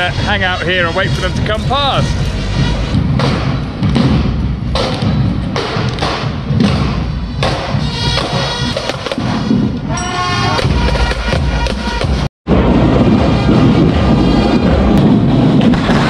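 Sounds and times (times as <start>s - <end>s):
brass held notes: 0.0s - 3.0s, 7.8s - 12.3s
marching drums: 0.0s - 16.0s.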